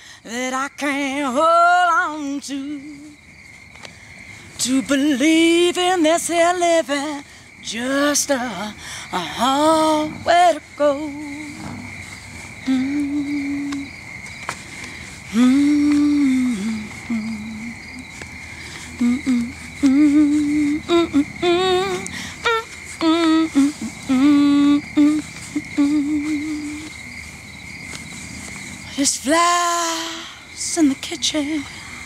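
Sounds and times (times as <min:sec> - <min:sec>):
woman humming: 0:12.6 - 0:14.0, 0:15.3 - 0:18.1, 0:18.9 - 0:27.0.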